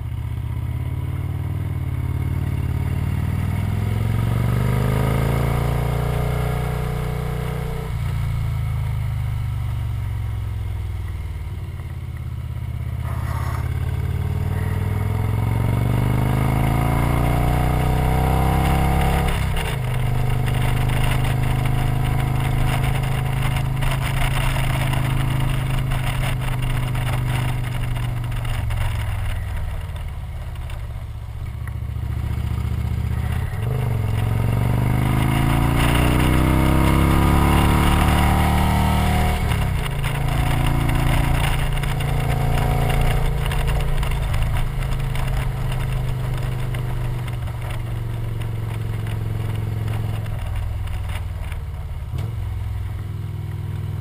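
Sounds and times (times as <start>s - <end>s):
motorcycle engine running: 0.0s - 54.0s
wind noise: 13.0s - 31.0s.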